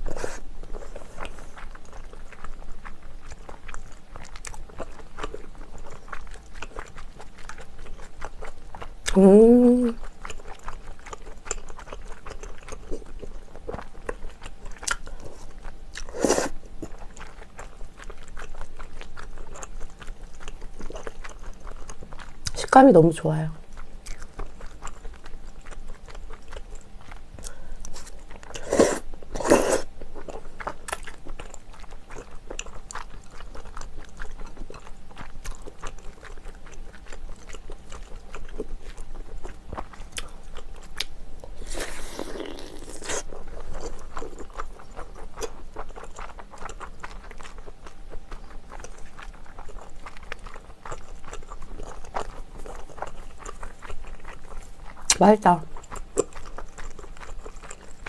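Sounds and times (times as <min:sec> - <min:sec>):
wet chewing with mouth clicks: 0:00.0 - 0:58.0
slurping noodles: 0:41.6 - 0:43.3.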